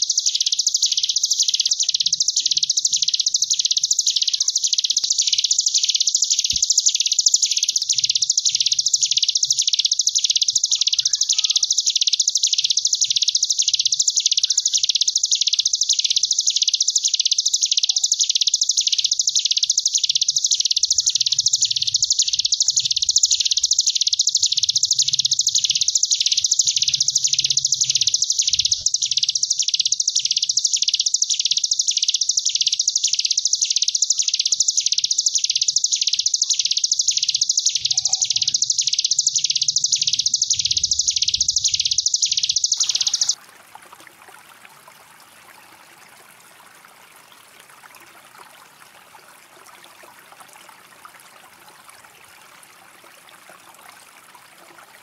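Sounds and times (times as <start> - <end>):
bird singing buzzing trill: 0.0 - 43.4.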